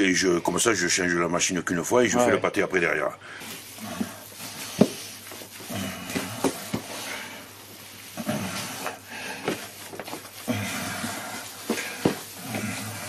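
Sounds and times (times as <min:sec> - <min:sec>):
hands kneading wet meat: 0:03.4 - 0:13.0.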